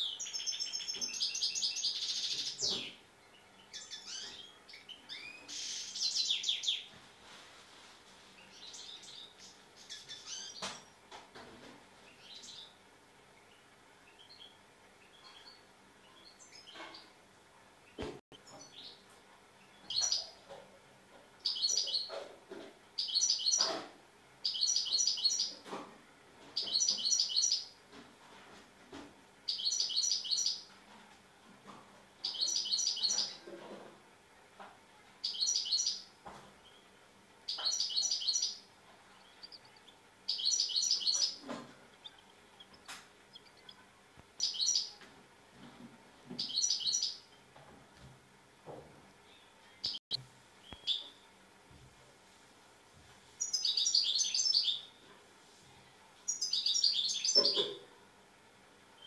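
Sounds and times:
goldfinch twittering song: 0:37.5 - 0:38.6, 0:39.2 - 0:41.4, 0:44.4 - 0:45.0.

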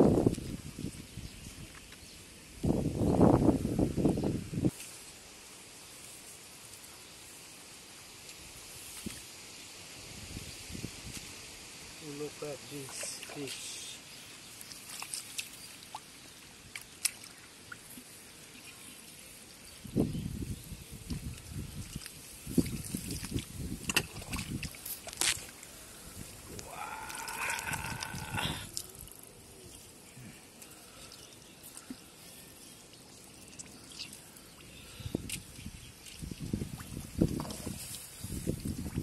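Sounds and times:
water drips and small splashes: 0:12.7 - 0:39.0
water sloshing: 0:21.8 - 0:25.6.

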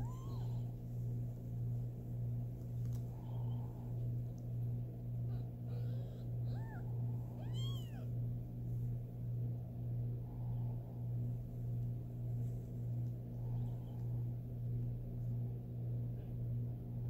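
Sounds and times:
kittens mewing: 0:00.0 - 0:00.8, 0:05.1 - 0:08.2
low pulsing hum: 0:00.0 - 0:17.0.

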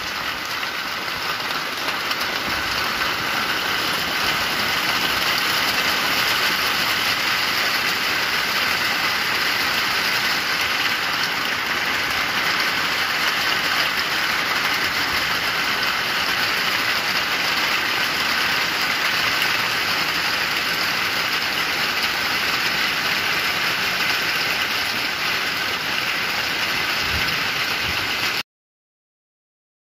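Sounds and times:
heavy rain on water: 0:00.0 - 0:28.4.

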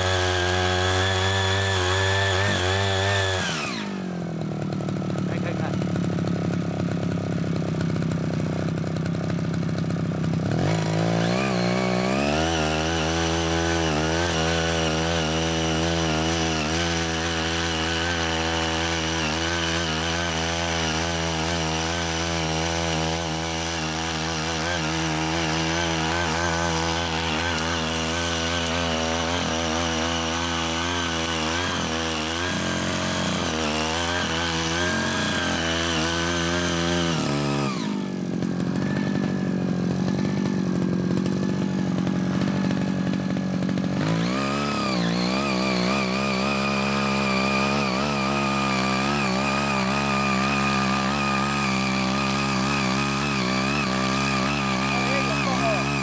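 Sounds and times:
small gasoline tiller engine running: 0:00.0 - 0:56.0.

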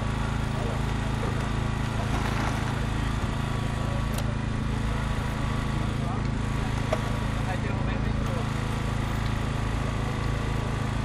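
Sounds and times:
small engine running steadily: 0:00.0 - 0:11.0.

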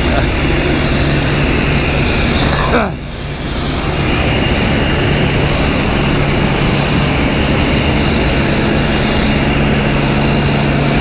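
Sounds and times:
high whine: 0:00.0 - 0:11.0
jet turbine rush: 0:00.0 - 0:11.0
low hum: 0:00.0 - 0:11.0.

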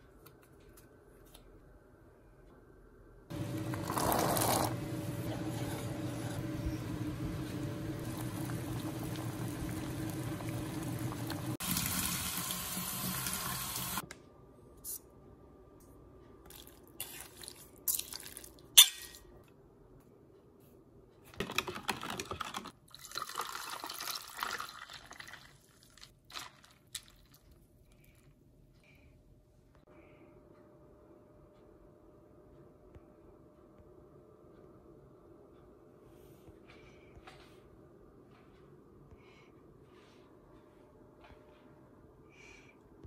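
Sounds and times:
water boiling and bubbling: 0:03.3 - 0:14.0, 0:22.9 - 0:27.5
liquid being poured: 0:03.5 - 0:04.8, 0:07.8 - 0:13.0, 0:22.4 - 0:27.5.

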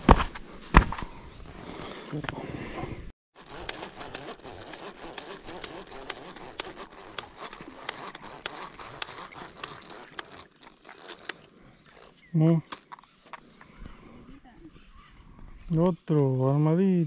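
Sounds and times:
fishing reel ticking: 0:03.4 - 0:12.2.

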